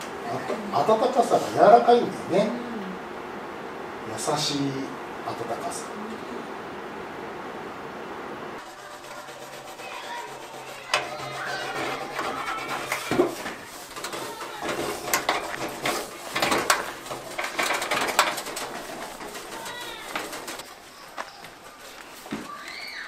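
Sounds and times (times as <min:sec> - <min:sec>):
stick scraping inside steel case: 0:08.6 - 0:20.8
birds calling: 0:10.7 - 0:23.0.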